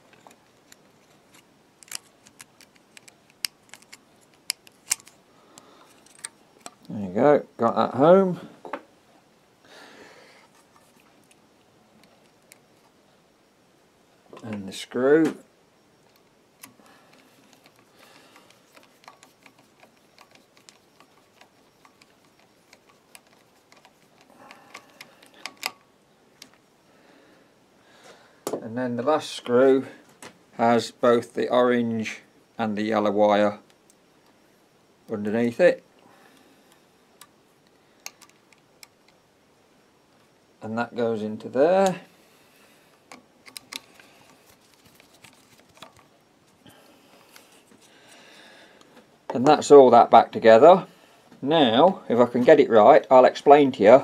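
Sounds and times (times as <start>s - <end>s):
small metallic clicks and taps: 0.1s - 6.9s, 16.0s - 25.8s, 37.2s - 39.2s.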